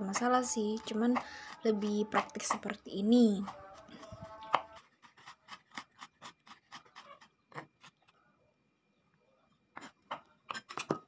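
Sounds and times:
knife chopping on wooden board: 4.3 - 7.0.

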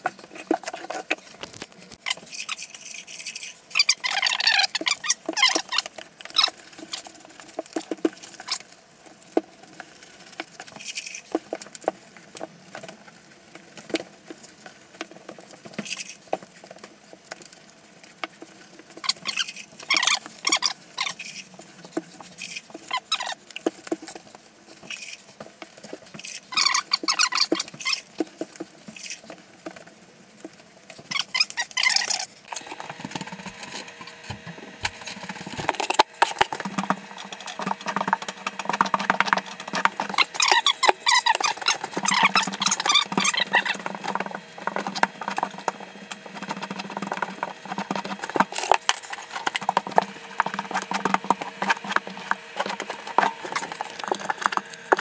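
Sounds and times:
squeaky rubbing on glass tile: 0.4 - 7.1, 19.0 - 21.5, 22.2 - 23.4, 26.2 - 28.1, 31.0 - 32.4, 35.0 - 55.0
steady hum: 32.4 - 55.0.

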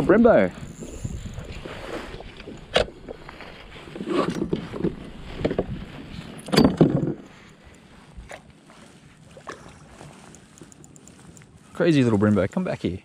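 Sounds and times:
knocks and scuffs on a kayak: 4.0 - 6.1.

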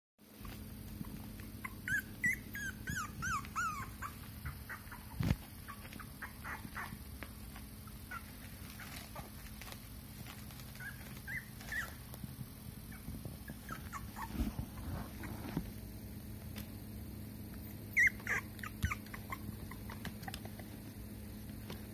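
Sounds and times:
puppy whimpering squeaks: 0.4 - 7.2, 8.0 - 9.8, 10.5 - 12.0, 12.9 - 15.4, 17.6 - 20.7.

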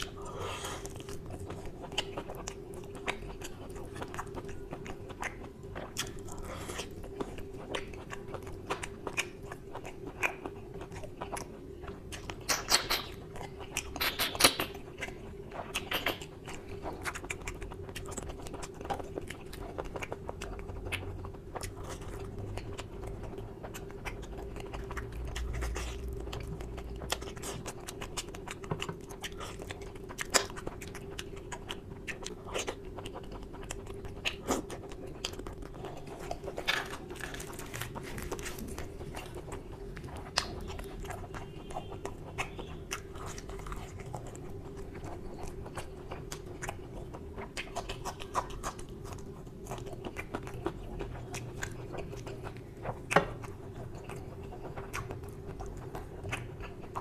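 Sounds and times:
steady low hum: 0.0 - 57.0
wet chewing: 0.0 - 57.0
lip smacks: 12.1 - 57.0
mouth clicks: 13.8 - 14.8.

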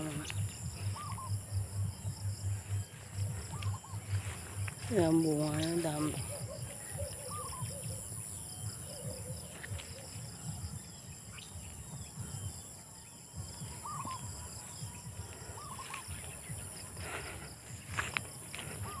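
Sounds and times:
low uneven rumble: 0.0 - 8.2
insects trilling: 0.0 - 19.0.

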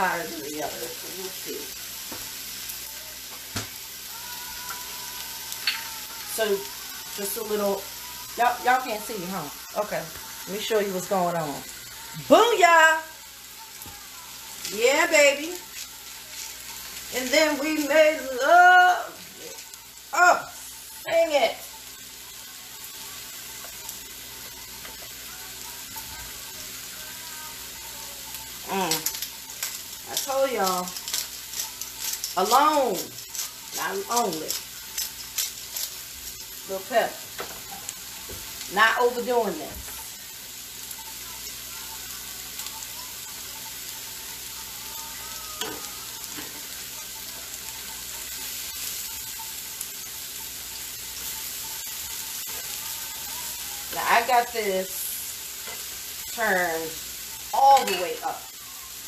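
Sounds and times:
food sizzling on a griddle: 0.0 - 59.0
tongs clicking: 5.5 - 5.9, 28.8 - 36.0.

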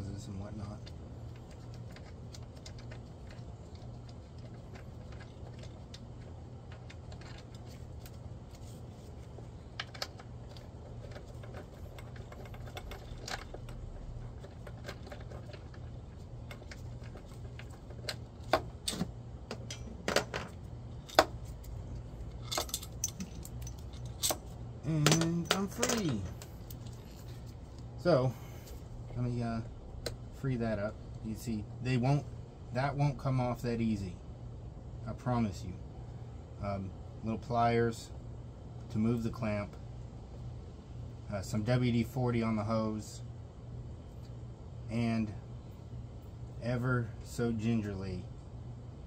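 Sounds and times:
steady low hum: 0.0 - 49.0
hand tools and metal parts clinking: 0.3 - 29.3.

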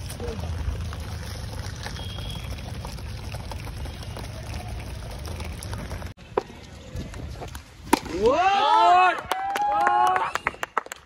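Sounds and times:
tap water running and splashing: 0.0 - 6.1.

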